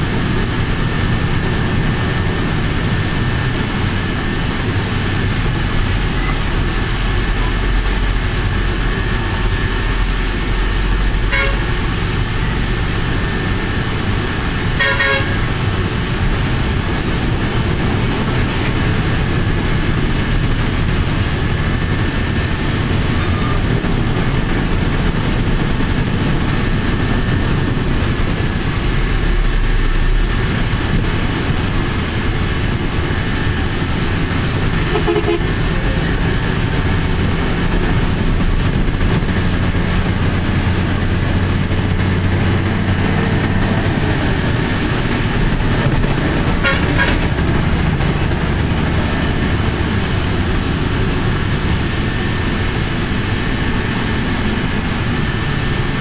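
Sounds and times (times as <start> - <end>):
vehicle engine and road rumble: 0.0 - 56.0
vehicle horn toot: 11.3 - 11.8, 14.8 - 15.5, 34.9 - 36.0, 46.6 - 47.3.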